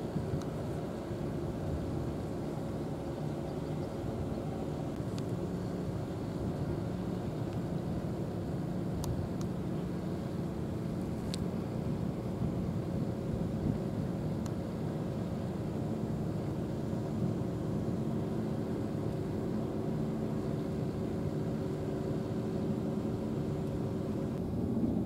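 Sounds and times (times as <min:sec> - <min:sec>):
low mechanical drone: 0:00.0 - 0:25.0
faint high ticks: 0:00.4 - 0:00.6, 0:09.0 - 0:09.6, 0:11.1 - 0:11.5, 0:14.4 - 0:14.6.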